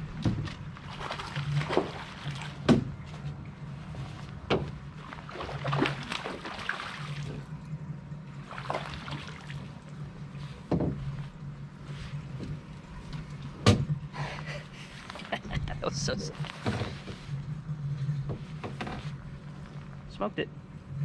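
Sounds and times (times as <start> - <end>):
steady low hum: 0.0 - 21.0
fish splashing at the surface: 0.8 - 2.8, 5.0 - 7.5, 8.4 - 9.8.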